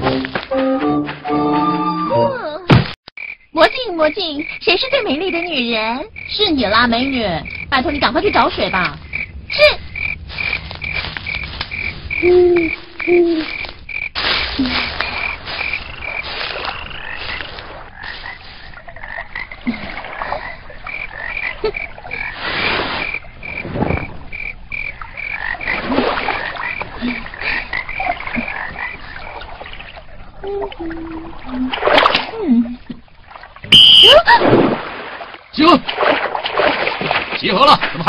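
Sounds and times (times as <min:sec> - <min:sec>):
frogs chirping: 0:03.2 - 0:31.8, 0:32.8 - 0:34.2
frogs croaking low: 0:03.2 - 0:31.9.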